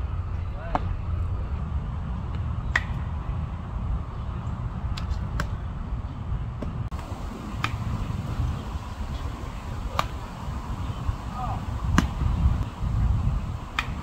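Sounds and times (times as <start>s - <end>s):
steady low rumble: 0.0s - 14.0s
baseballs being hit and caught: 0.7s - 1.0s, 2.2s - 3.1s, 4.9s - 5.6s, 6.6s - 8.4s, 9.1s - 12.3s, 13.7s - 14.0s.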